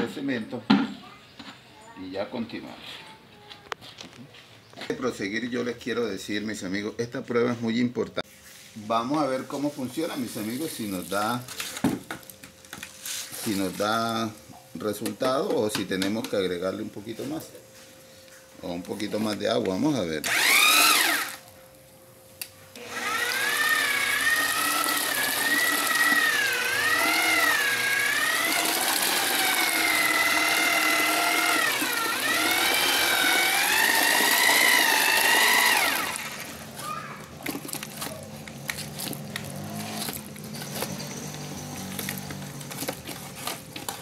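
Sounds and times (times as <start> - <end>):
electric drill mixing cement: 9.4 - 15.2, 20.1 - 21.6, 22.7 - 44.0.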